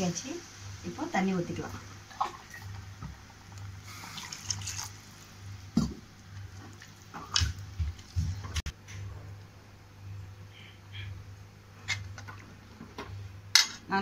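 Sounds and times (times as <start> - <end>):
liquid sloshing in pan: 1.8 - 8.1.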